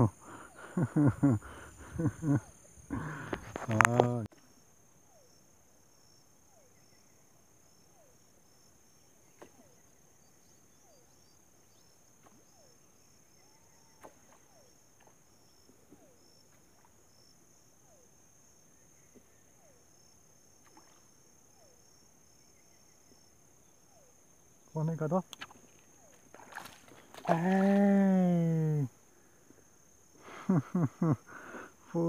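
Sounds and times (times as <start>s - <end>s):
insects trilling: 0.0s - 32.0s
pulsing chirp: 9.0s - 14.8s.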